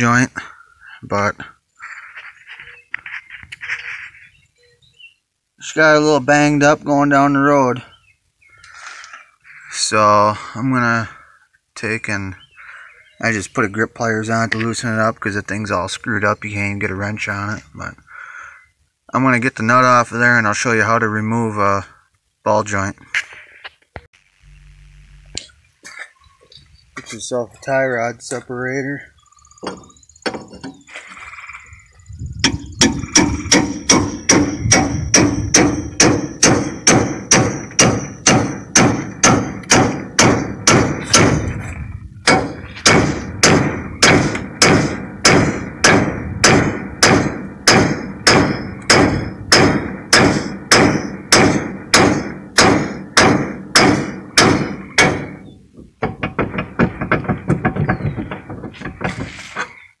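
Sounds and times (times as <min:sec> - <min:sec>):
hammer blows on metal: 0:32.4 - 0:55.4.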